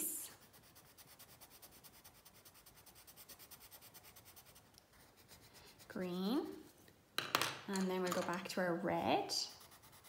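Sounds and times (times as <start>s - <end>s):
pencil scratching on paper: 0.3s - 6.7s, 9.3s - 10.0s.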